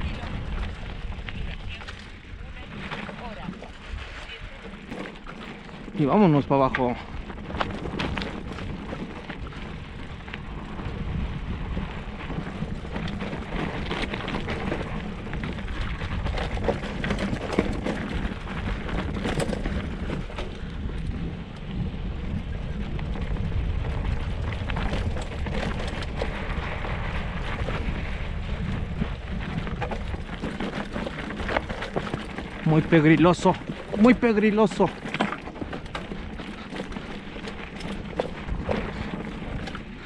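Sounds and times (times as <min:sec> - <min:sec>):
bike tyres on rocky dirt: 0:00.0 - 0:40.0
wind buffeting microphone: 0:00.0 - 0:40.0
bike knocking over stones: 0:04.6 - 0:21.3, 0:22.9 - 0:40.0.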